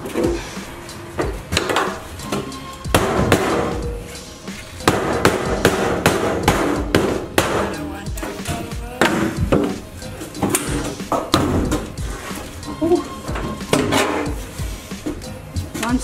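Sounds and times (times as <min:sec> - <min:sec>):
background music: 0:00.0 - 0:16.0
mallet banging sheet metal: 0:02.9 - 0:04.0, 0:04.8 - 0:09.8.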